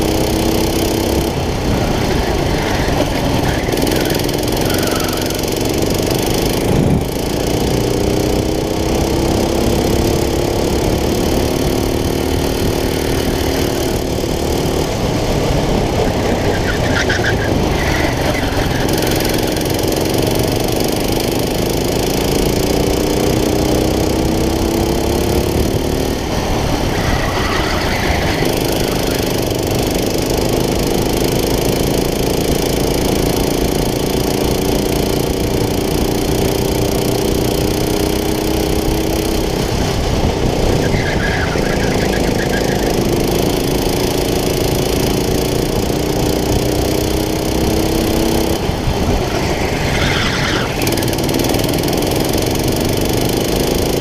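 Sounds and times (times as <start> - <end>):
go-kart engine racing: 0.0 - 54.0.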